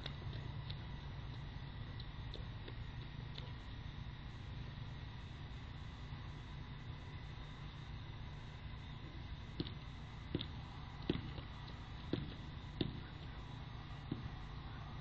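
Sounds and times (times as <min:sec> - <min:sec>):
faint high electronic whine: 0:00.0 - 0:15.0
hiss and low hum: 0:00.0 - 0:15.0.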